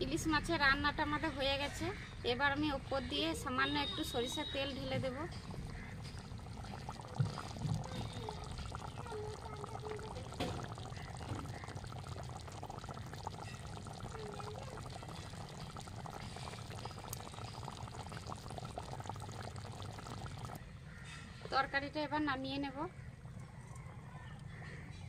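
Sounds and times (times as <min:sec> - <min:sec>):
gravy bubbling and popping: 0:03.1 - 0:20.7.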